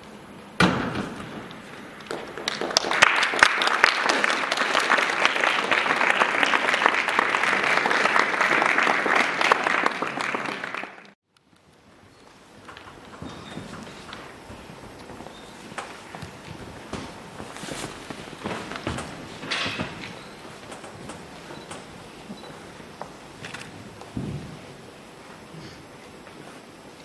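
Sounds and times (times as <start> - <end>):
applause: 2.0 - 11.2.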